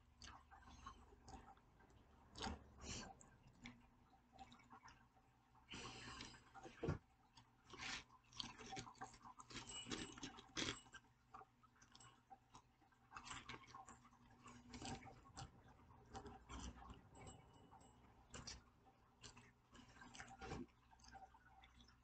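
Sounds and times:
person chewing crunchy food: 7.7s - 11.0s.

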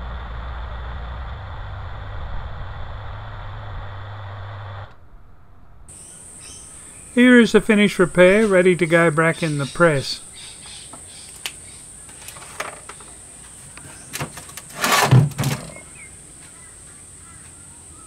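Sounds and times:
metal plate scraping on bench: 14.2s - 15.9s.

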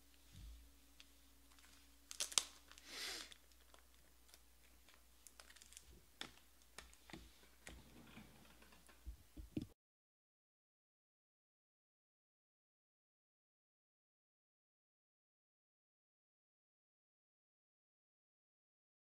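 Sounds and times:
plastic sleeve rustling: 1.0s - 7.8s.

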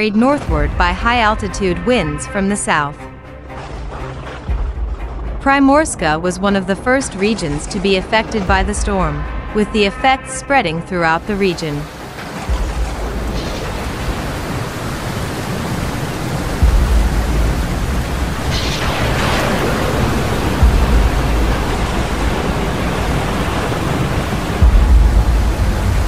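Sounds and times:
low rumbling bursts: 0.0s - 26.0s
heavy rain: 6.8s - 26.0s.

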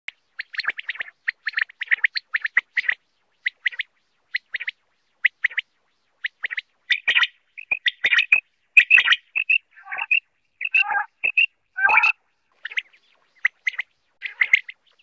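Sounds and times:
quail calling: 6.9s - 15.0s.

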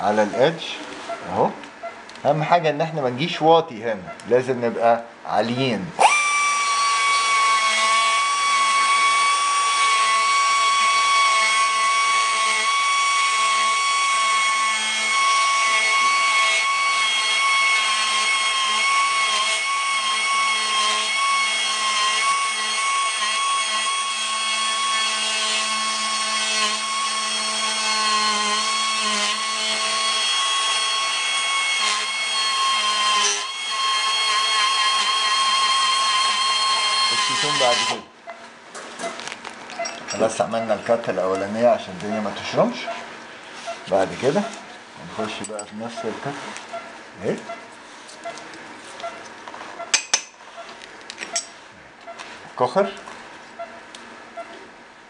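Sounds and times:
bone saw whining: 6.0s - 38.1s.

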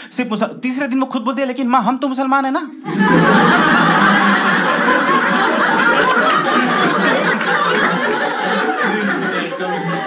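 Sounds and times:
audience laughing: 2.9s - 10.0s.

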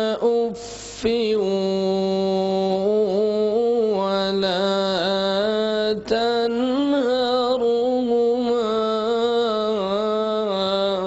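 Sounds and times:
man chanting melodic recitation: 0.0s - 11.0s.

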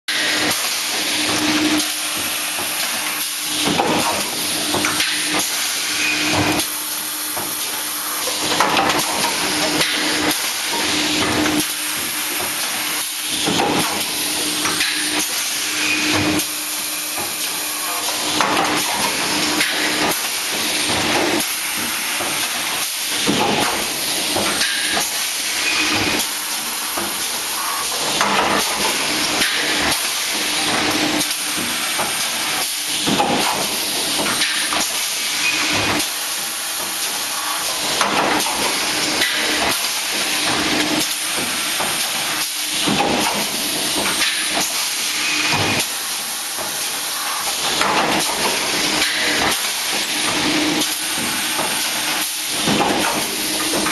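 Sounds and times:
machine knocking: 17.0s - 32.3s, 47.4s - 53.9s.

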